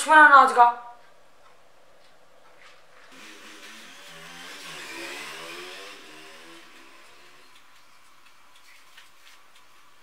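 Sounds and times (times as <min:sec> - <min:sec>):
faint steady background noise: 0:00.0 - 0:10.0
vehicle engine passing by: 0:03.2 - 0:07.5.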